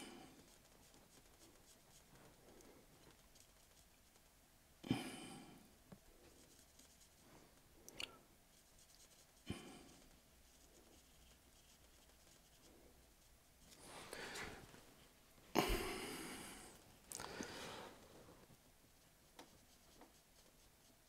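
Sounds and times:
paintbrush scratching on canvas: 0.0s - 4.4s, 6.2s - 7.6s, 8.4s - 14.2s, 19.0s - 21.0s.

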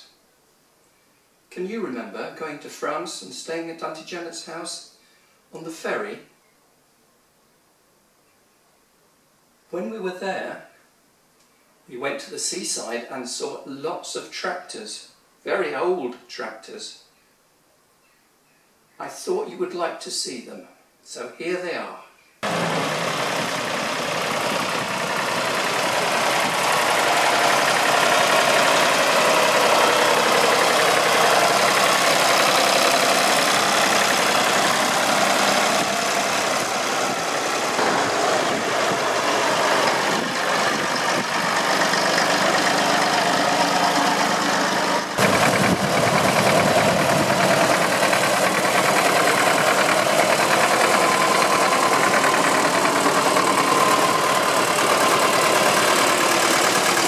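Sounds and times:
tractor engines chugging: 22.4s - 57.0s.

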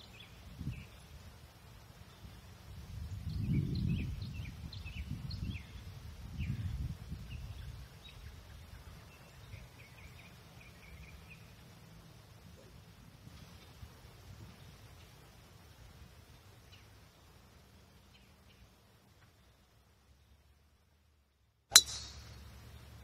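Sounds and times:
birds chirping: 3.3s - 11.7s.

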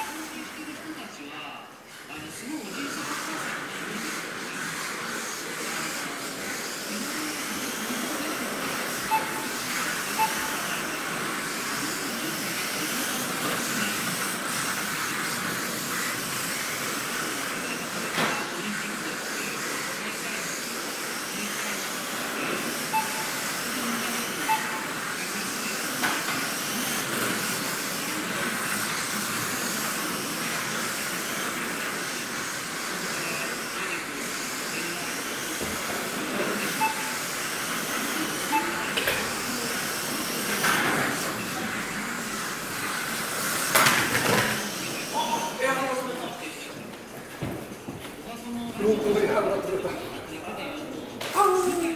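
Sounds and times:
small electric motors whirring: 2.4s - 45.7s
short beeps: 9.1s - 10.9s, 22.9s - 23.4s, 24.4s - 24.9s, 36.7s - 37.2s, 38.5s - 39.0s, 45.1s - 45.6s.

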